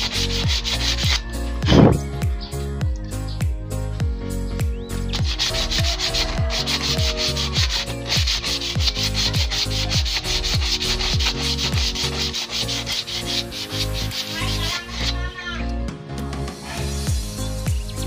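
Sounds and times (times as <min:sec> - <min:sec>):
hand rubbing metal: 0:00.0 - 0:02.1, 0:05.1 - 0:15.3
music with deep bass beat: 0:00.0 - 0:14.8, 0:16.3 - 0:18.0.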